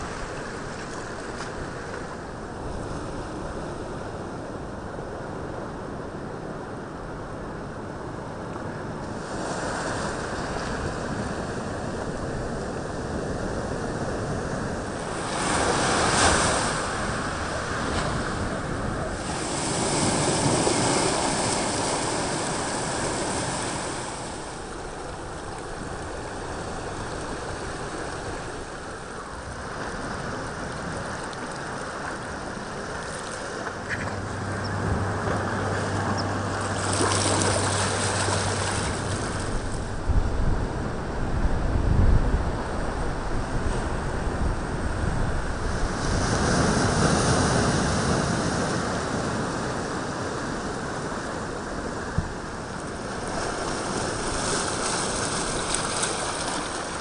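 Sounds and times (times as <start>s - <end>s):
waves washing onto rocky shore: 8.8s - 34.5s, 35.1s - 41.2s, 42.7s - 57.0s
low steady hum: 10.2s - 49.5s.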